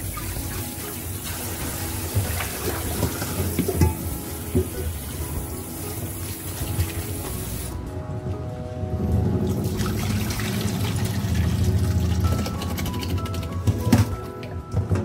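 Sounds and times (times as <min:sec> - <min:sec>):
meat rinsed under water: 0:00.0 - 0:07.7, 0:09.6 - 0:14.2.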